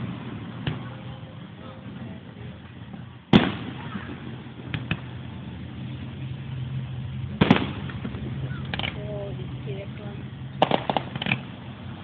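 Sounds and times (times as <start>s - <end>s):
fireworks booming: 0.0s - 12.0s
small firework cracks: 2.7s - 5.9s, 7.3s - 9.3s, 10.6s - 12.0s.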